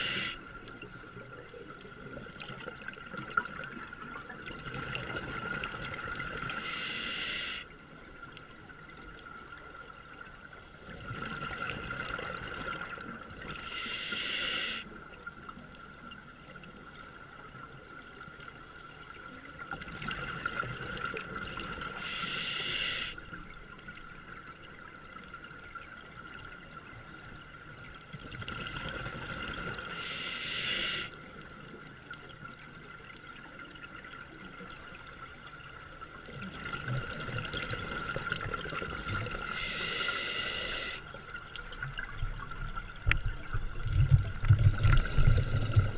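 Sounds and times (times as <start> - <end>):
diver breathing through regulator: 0.0 - 0.4, 6.6 - 7.7, 13.6 - 14.9, 22.0 - 23.2, 30.0 - 31.1, 39.5 - 41.0
faint steady whine: 5.9 - 10.8, 21.6 - 25.0, 29.8 - 32.2, 39.1 - 45.9.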